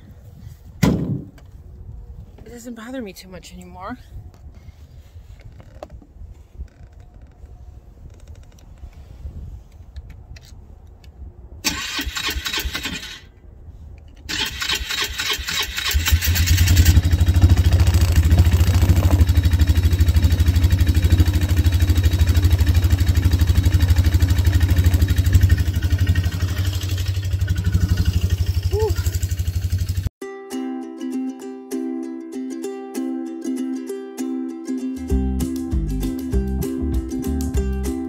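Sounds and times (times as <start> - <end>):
engine starter cranking: 11.6 - 13.3, 14.3 - 19.7
engine idling: 15.8 - 30.1.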